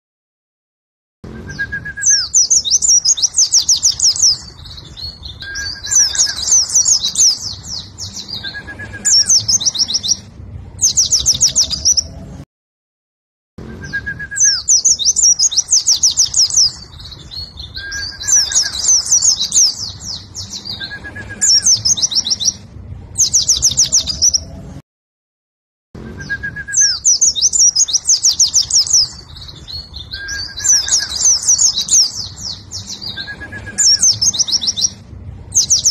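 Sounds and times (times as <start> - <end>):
bird singing high chattering phrases: 1.3 - 12.3, 13.6 - 24.6, 26.2 - 35.9.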